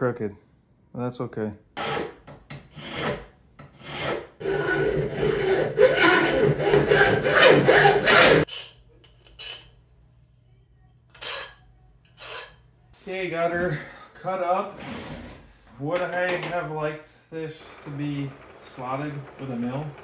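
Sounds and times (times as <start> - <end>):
hacksaw cutting metal: 1.8 - 8.5.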